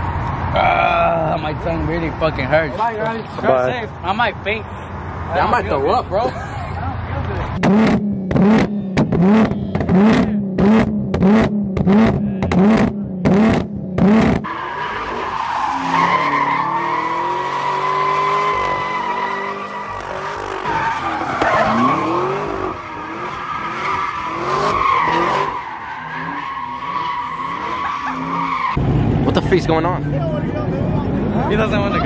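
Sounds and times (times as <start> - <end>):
car engine revving: 7.4 - 32.0
tyres squealing: 14.5 - 28.8.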